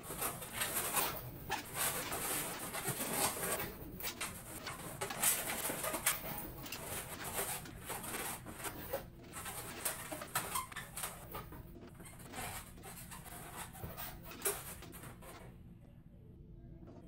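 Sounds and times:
balloons squeaking and rubbing: 0:00.0 - 0:15.4.

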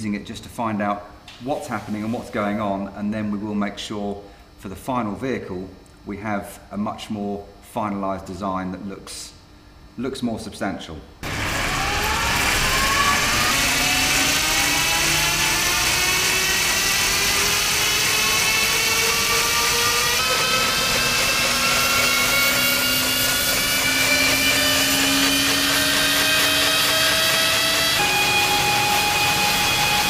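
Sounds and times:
electric motorcycle motor whining: 0:11.2 - 0:30.0.

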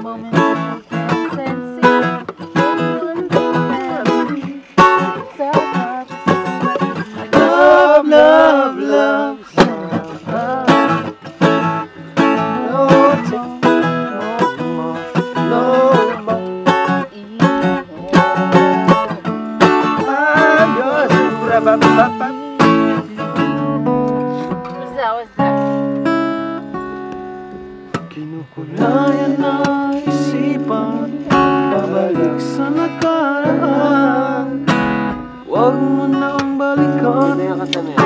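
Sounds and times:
acoustic guitar: 0:00.0 - 0:38.0.

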